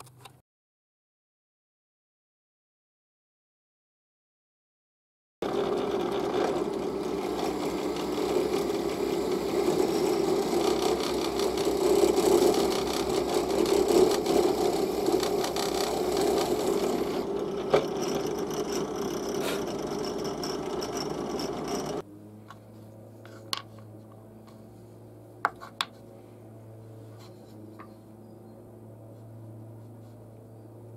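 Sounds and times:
drill press motor boring wood: 0:05.4 - 0:22.0.

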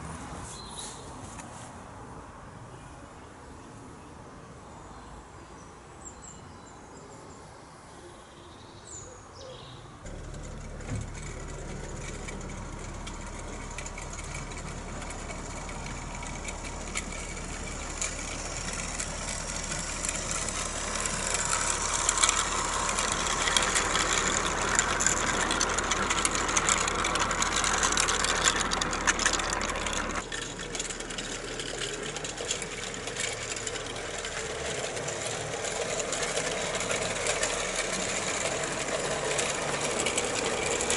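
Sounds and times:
wheels clicking on track: 0:10.0 - 0:40.9
model train motor humming: 0:10.1 - 0:40.9.

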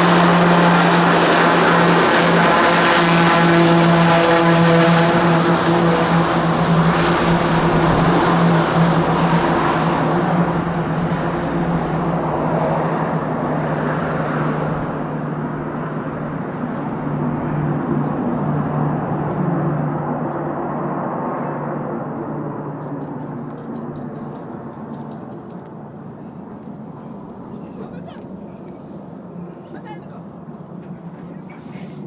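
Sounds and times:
aircraft engine hiss: 0:00.0 - 0:20.0, 0:31.4 - 0:32.0
propeller drone: 0:00.0 - 0:32.0.

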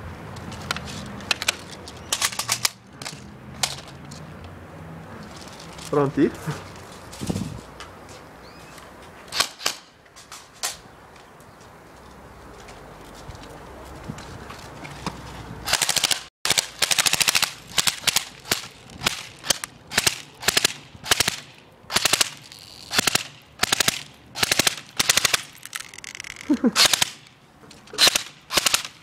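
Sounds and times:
airsoft rifle bursts: 0:15.7 - 0:26.0, 0:27.9 - 0:29.0.

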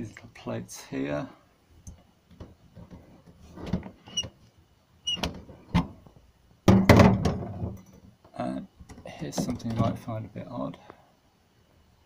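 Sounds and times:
short squeaks: 0:04.0 - 0:04.3.

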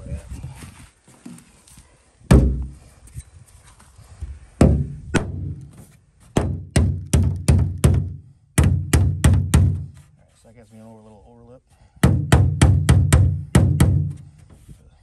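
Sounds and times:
hatchet striking metal hull: 0:02.3 - 0:02.7, 0:04.6 - 0:05.6, 0:06.4 - 0:09.9, 0:12.0 - 0:14.2.

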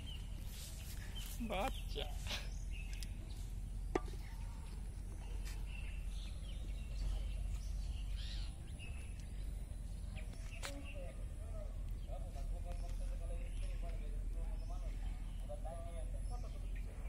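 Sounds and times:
steady low rumble: 0:00.0 - 0:17.0
faint bird chirps: 0:04.2 - 0:17.0.

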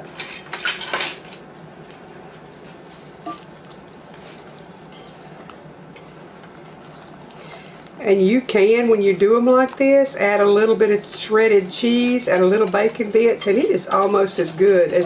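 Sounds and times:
soft stirring: 0:01.8 - 0:15.0
whisk clattering against bowl: 0:10.4 - 0:15.0.

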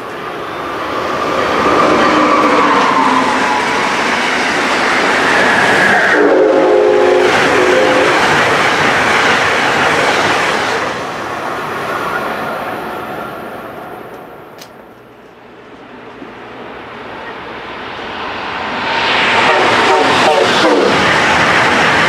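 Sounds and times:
train passing at speed: 0:00.0 - 0:22.0
train horn chord: 0:06.1 - 0:08.2, 0:19.4 - 0:21.0.

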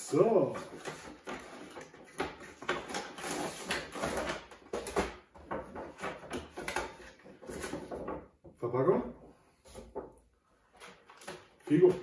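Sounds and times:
packaging rustling and scraping: 0:00.0 - 0:08.2.

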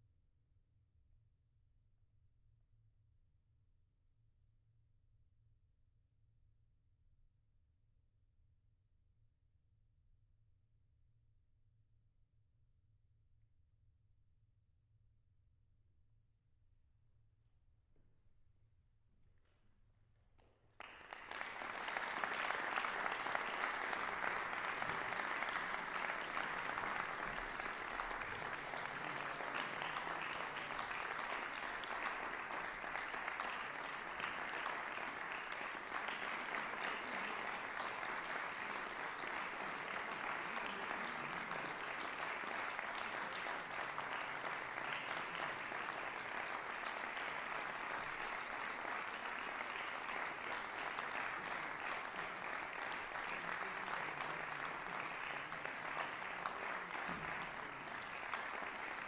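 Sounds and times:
audience applauding: 0:20.8 - 0:59.0.

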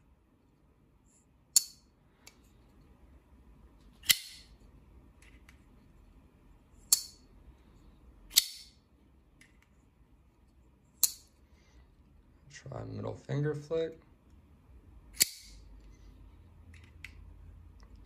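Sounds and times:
knife blade metallic snaps: 0:01.6 - 0:01.8, 0:04.0 - 0:04.5, 0:08.3 - 0:08.7, 0:11.0 - 0:11.3, 0:15.2 - 0:15.6.

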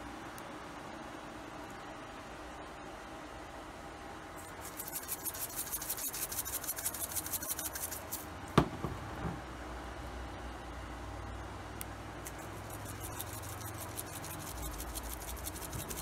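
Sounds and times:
seasoning grinder clicking grind: 0:12.2 - 0:16.0.

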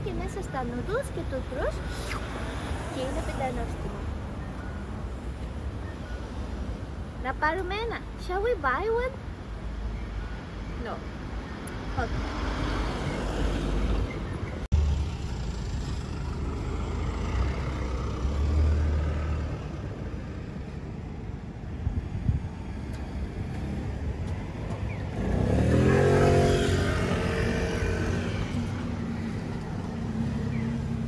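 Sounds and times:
vehicle passing close by: 0:14.8 - 0:19.8, 0:25.0 - 0:31.0.

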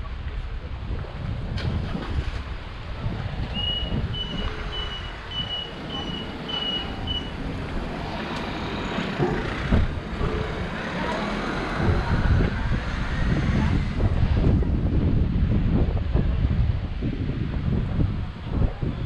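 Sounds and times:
wind rumbling on microphone: 0:00.0 - 0:19.0
short high electronic beeps: 0:03.6 - 0:07.4.

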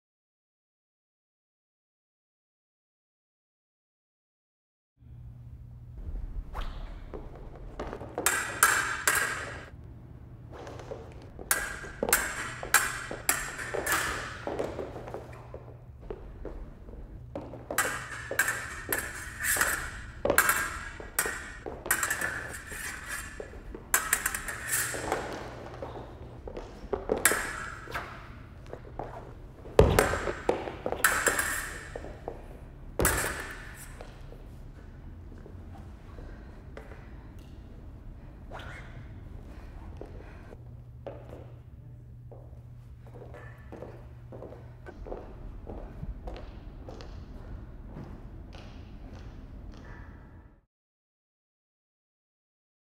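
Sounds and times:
low steady hum: 0:05.0 - 0:50.6
fencing blades clashing: 0:06.6 - 0:09.8, 0:10.6 - 0:34.9.

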